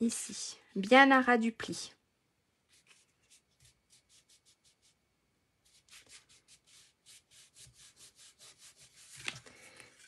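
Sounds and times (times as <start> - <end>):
fingertips rubbing cardstock: 5.7 - 9.4.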